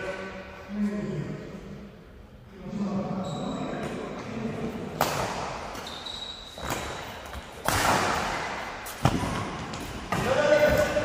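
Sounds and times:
racket hitting shuttlecock: 5.0s - 5.9s, 6.6s - 11.0s
short high squeaks: 5.8s - 7.0s.

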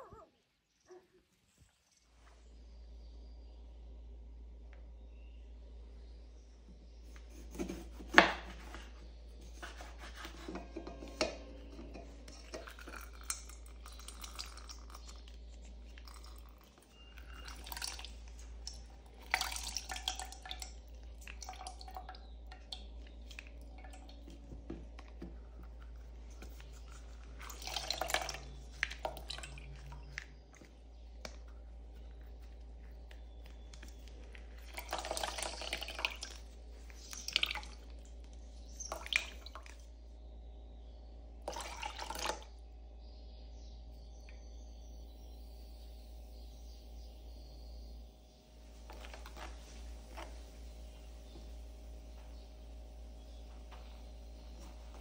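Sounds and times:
juice dripping into a jug: 10.5s - 43.0s, 44.0s - 44.8s, 48.6s - 55.0s.

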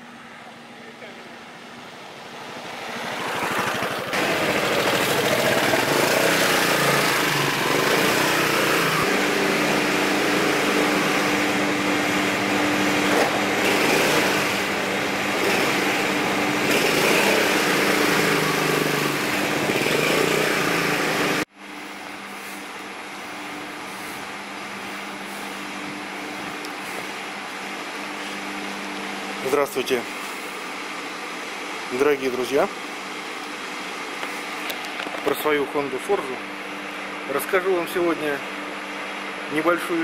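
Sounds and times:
scooter engine running: 2.9s - 21.5s.

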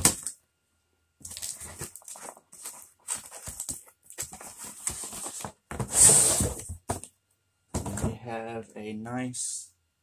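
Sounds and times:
cardboard boxes rustling and scraping: 1.2s - 7.1s.

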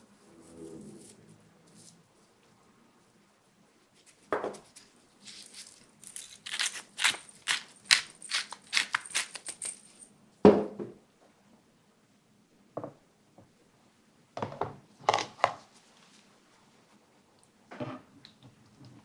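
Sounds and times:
pepper mill grinding: 5.2s - 10.0s.

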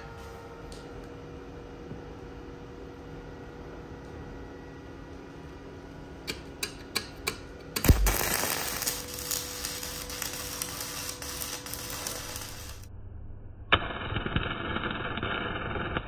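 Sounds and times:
welding arc crackling: 7.2s - 12.9s, 13.7s - 16.0s.

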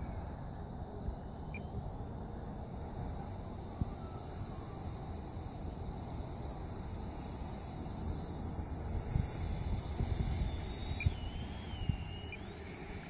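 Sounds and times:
electric ducted fan whine: 0.0s - 13.0s.

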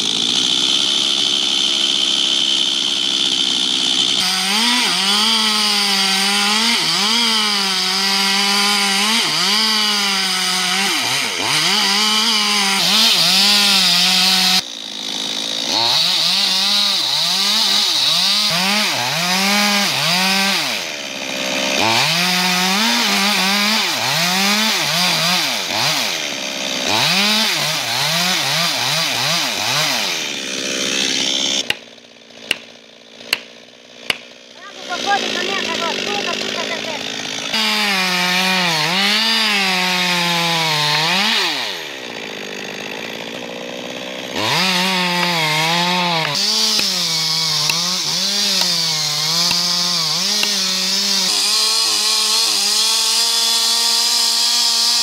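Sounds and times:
chainsaws cutting into tree trunks: 0.0s - 55.0s.

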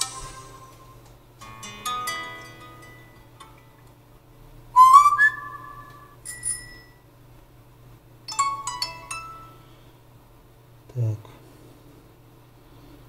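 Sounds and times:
high notification chimes: 0.0s - 0.9s
rising whistle-like tone: 4.8s - 6.2s.

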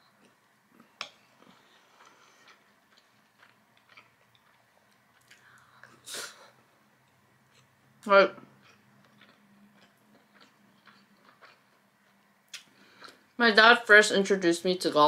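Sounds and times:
mouth chewing sounds: 0.2s - 6.0s, 8.4s - 13.2s.

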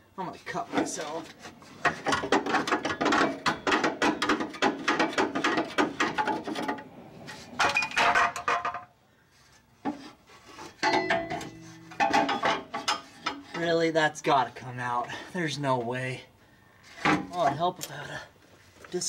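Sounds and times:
metal parts clanking and rattling: 0.7s - 8.9s, 10.6s - 13.8s.

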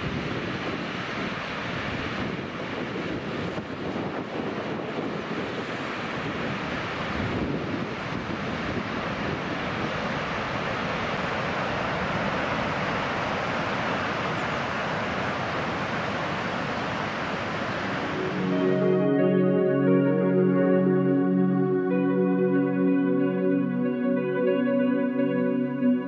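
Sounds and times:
wind buffeting microphone: 0.0s - 18.6s
river water rushing over weir: 0.0s - 19.1s.

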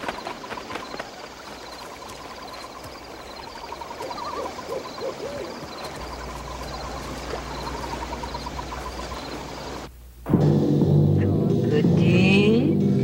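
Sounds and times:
pulsing chirp: 0.0s - 9.9s
owl hooting: 0.6s - 9.9s.

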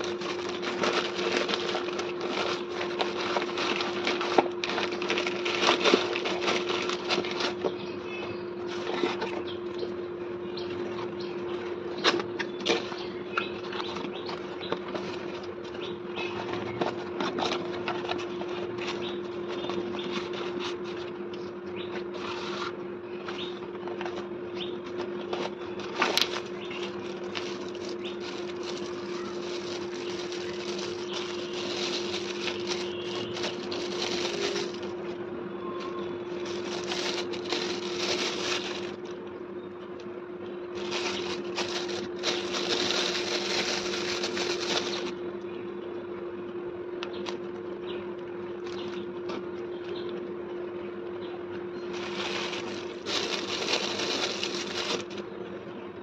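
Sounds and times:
paper and plastic bag crinkling: 0.0s - 7.7s, 8.6s - 9.4s, 13.6s - 21.1s, 24.9s - 35.2s, 36.2s - 39.2s, 40.7s - 45.2s, 51.9s - 55.2s
steady low hum: 0.0s - 56.0s.

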